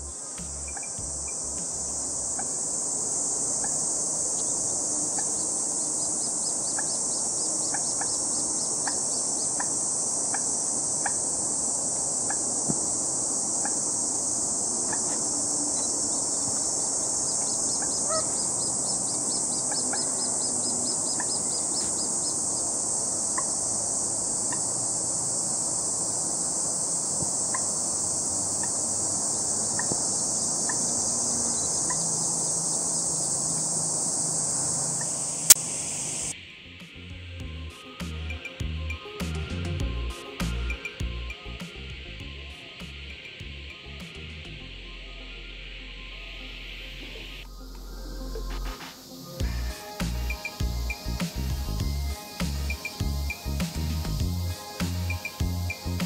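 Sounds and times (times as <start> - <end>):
insects shrilling: 0.0 - 56.0
moorhen calls: 3.4 - 23.6, 27.4 - 33.0.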